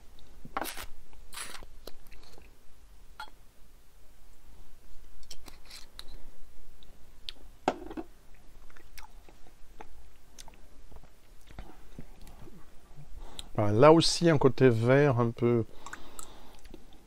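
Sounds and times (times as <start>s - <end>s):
mouth noises tasting: 0.6s - 2.5s.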